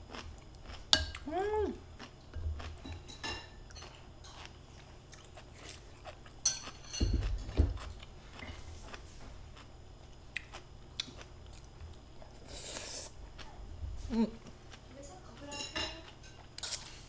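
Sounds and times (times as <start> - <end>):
person humming: 1.2 - 1.8.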